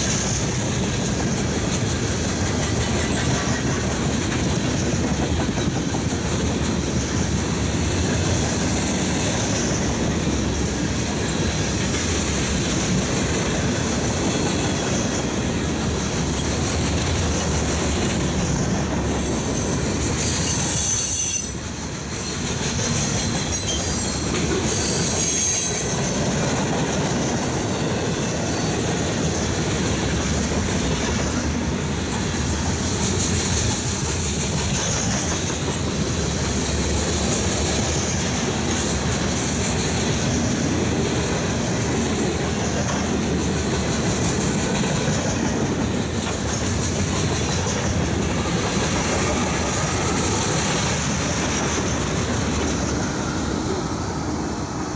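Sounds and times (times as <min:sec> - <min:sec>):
clatter over rail joints: 0:00.0 - 0:53.6
train wheels rumbling on rail: 0:00.0 - 0:54.9
high wheel squeal: 0:18.5 - 0:26.3.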